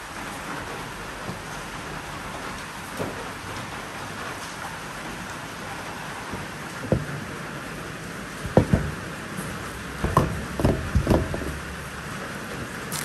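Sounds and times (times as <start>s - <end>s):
short knocks and clunks: 6.3s - 7.4s, 8.4s - 9.1s, 10.0s - 11.6s.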